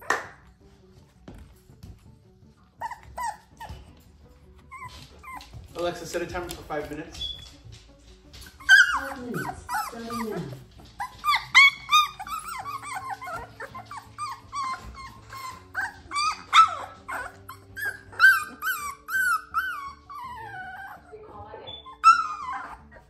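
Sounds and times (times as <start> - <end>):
puppies whining and yelping: 2.7 - 5.7, 8.3 - 23.0.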